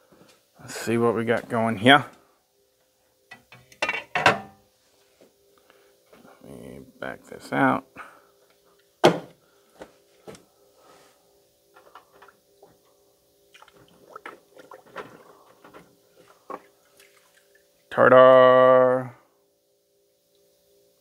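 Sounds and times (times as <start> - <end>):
liquid sloshing: 13.5 - 15.6, 16.2 - 17.6.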